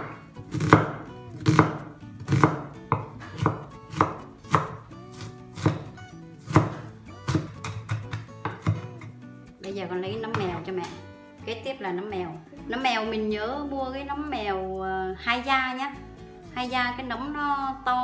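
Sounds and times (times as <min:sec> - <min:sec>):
knife chopping on wooden board: 0:00.0 - 0:09.0.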